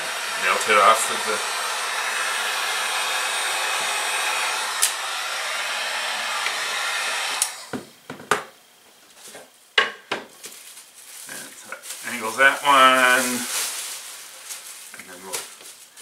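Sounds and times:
heat gun blowing hiss: 0:00.0 - 0:07.8, 0:12.0 - 0:15.3.

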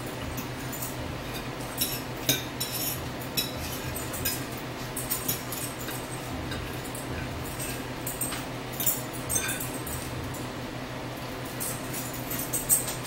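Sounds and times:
cutlery clinking on plates: 0:00.7 - 0:10.0.

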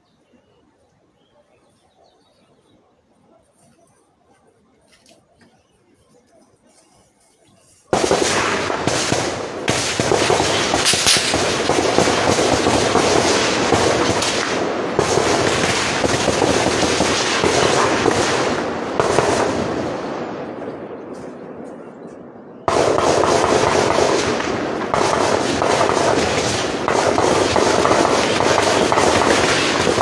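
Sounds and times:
heavy gunfire: 0:07.9 - 0:21.0, 0:22.7 - 0:30.0.

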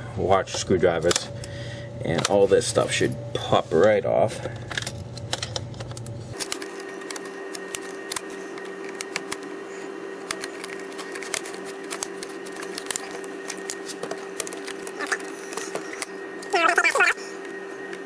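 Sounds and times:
steady hum: 0:00.0 - 0:18.0.

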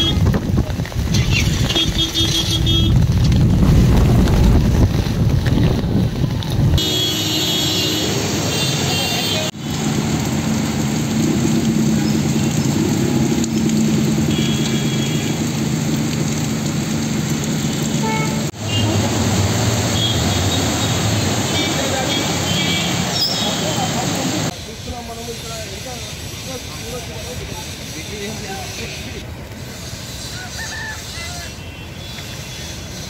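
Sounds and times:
wind rumble on microphone: 0:00.0 - 0:06.8
vehicle engines running: 0:00.0 - 0:30.2
heavy rain: 0:00.0 - 0:33.0.

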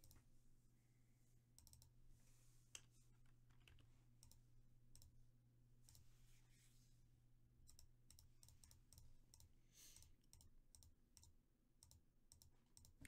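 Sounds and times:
computer mouse clicks: 0:01.6 - 0:01.9, 0:02.8 - 0:05.1, 0:05.8 - 0:06.1, 0:07.7 - 0:13.0.

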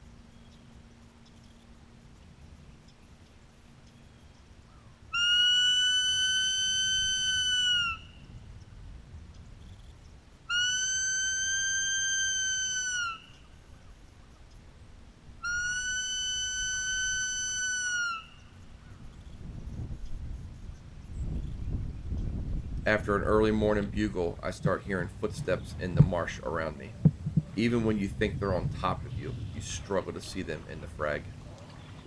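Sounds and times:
deer stag bugling whistle: 0:05.1 - 0:08.3, 0:10.5 - 0:13.5, 0:15.4 - 0:18.6.

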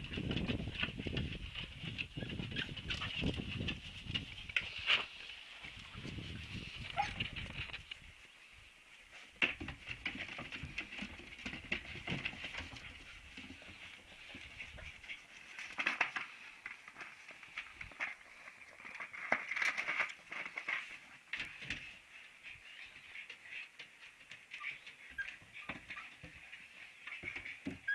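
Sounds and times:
puppies squeaking and whimpering: 0:24.6 - 0:26.2.

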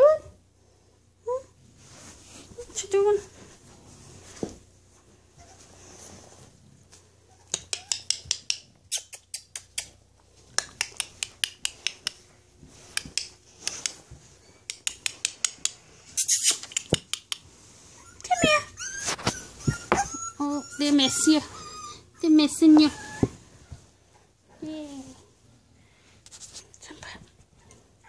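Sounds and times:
puppy whimpering: 0:07.3 - 0:08.2, 0:17.9 - 0:23.4.

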